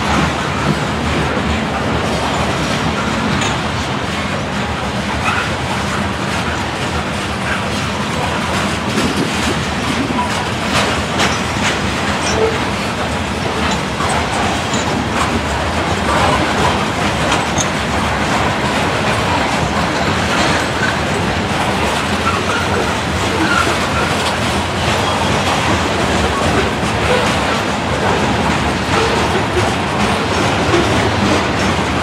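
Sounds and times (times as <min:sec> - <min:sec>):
freight train wheels rumbling: 0:00.0 - 0:32.0
wheels clacking over rail joints: 0:00.0 - 0:32.0.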